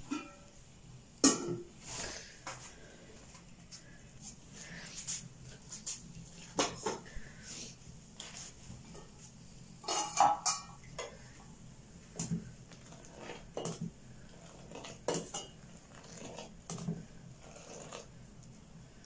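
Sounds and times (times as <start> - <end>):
pot lid clattering: 9.8 - 10.8
ladle clinking against pot: 9.8 - 11.1.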